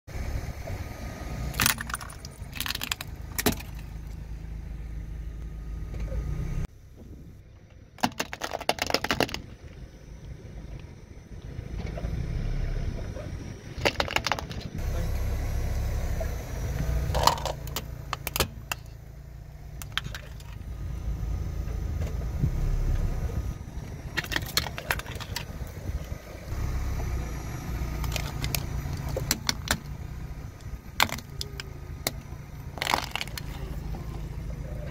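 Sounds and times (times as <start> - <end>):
slowly moving car: 0.1 - 8.0, 9.3 - 34.9
plastic toys cracking under tyre: 1.5 - 4.1, 8.0 - 9.6, 13.8 - 14.8, 19.8 - 20.6, 24.1 - 25.6, 28.0 - 30.0, 30.9 - 33.8.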